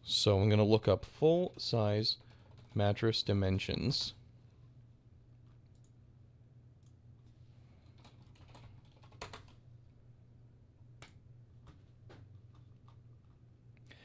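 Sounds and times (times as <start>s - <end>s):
low steady hum: 0.0s - 14.0s
computer keyboard typing: 7.8s - 9.6s.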